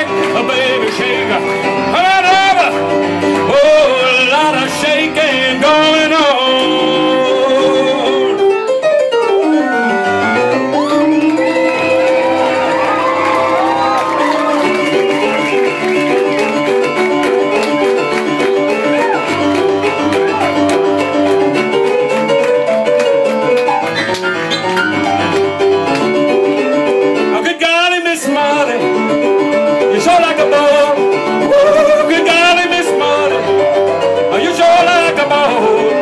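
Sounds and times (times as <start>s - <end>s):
fast rock and roll piano: 0.0s - 36.0s
wavering vocal cry: 9.4s - 10.7s.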